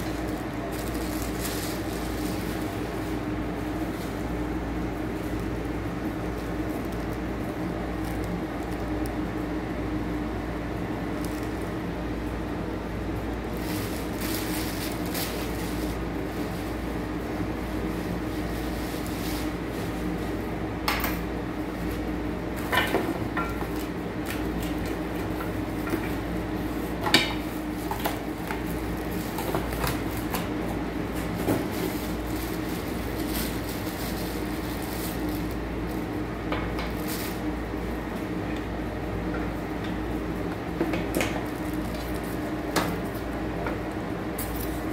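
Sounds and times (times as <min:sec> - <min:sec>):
packaging being handled: 0:00.0 - 0:09.4, 0:13.4 - 0:20.4, 0:23.5 - 0:37.6
steady low hum: 0:00.0 - 0:44.9.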